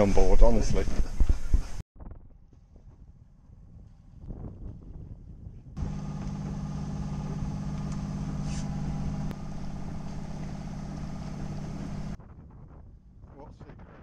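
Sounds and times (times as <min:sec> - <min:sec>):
boat engine humming: 0:05.8 - 0:12.2.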